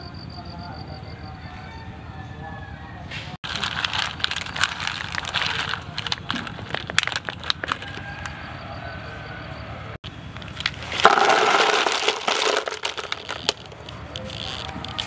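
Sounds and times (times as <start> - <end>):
mussel shells clicking: 3.5 - 8.3, 10.3 - 15.0.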